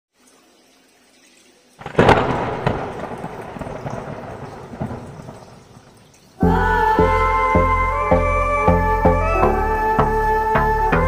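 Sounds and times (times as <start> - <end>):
thunderclap and rumble: 1.8 - 6.2.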